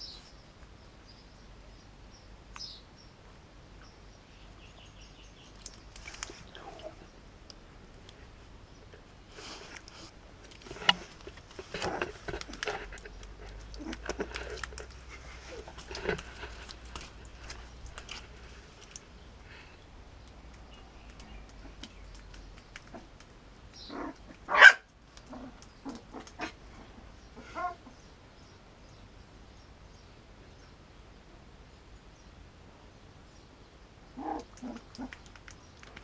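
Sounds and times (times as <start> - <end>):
small clicks and rustles: 5.4 - 8.2, 8.8 - 19.5, 20.2 - 26.8, 34.2 - 36.0
puppy yipping: 23.9 - 24.9.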